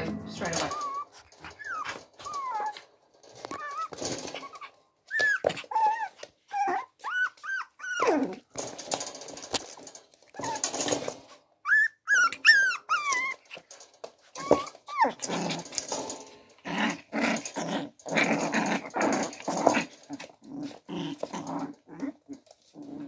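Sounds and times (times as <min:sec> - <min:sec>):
puppy growls: 0:00.0 - 0:11.1, 0:11.7 - 0:23.0
puppies yipping and squealing: 0:00.5 - 0:08.4, 0:11.6 - 0:13.6, 0:14.3 - 0:15.8
puppy yelp: 0:00.7 - 0:02.8, 0:03.5 - 0:08.3, 0:11.6 - 0:13.6, 0:14.3 - 0:15.2.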